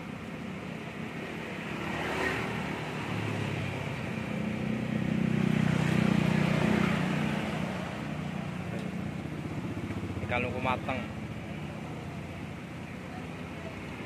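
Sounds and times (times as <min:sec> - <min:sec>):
vehicle engine passing by: 0:01.3 - 0:12.1.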